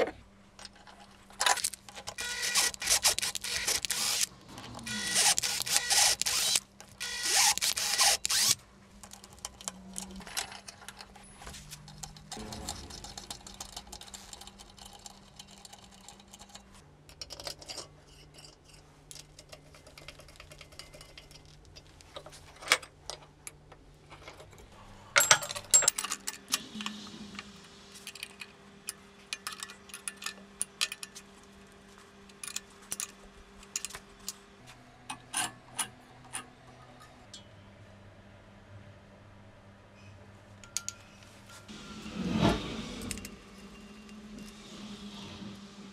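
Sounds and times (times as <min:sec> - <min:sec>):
cordless drill running: 0:02.2 - 0:08.6.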